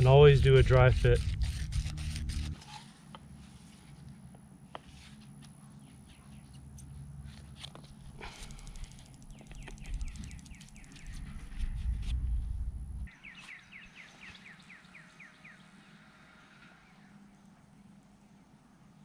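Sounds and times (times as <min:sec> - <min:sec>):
songbird chirping: 0:08.7 - 0:12.1, 0:13.1 - 0:18.4
low rumble: 0:11.0 - 0:13.1.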